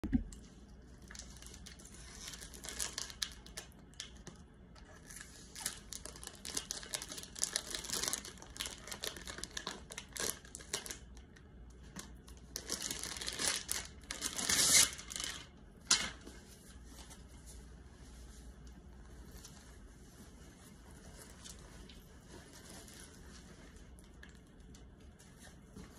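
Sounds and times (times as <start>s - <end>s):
plastic bag crinkling: 0.9s - 11.2s, 11.9s - 15.6s.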